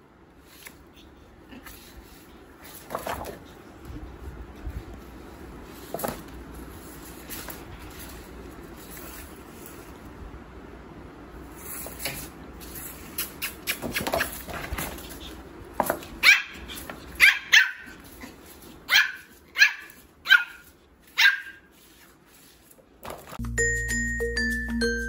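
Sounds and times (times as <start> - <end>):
puppy barking high-pitched: 16.2 - 21.7.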